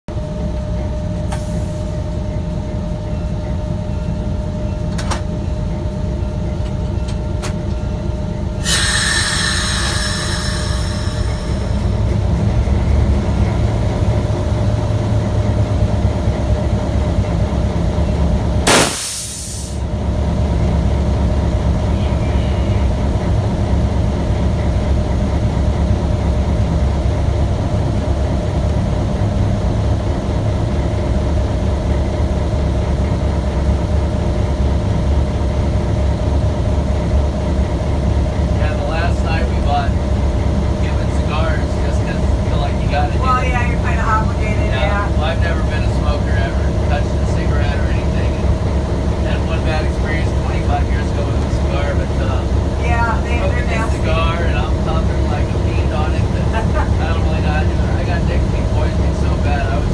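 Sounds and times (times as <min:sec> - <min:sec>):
train rumbling on rails: 0:00.1 - 0:59.9
loud rush: 0:18.7 - 0:19.8.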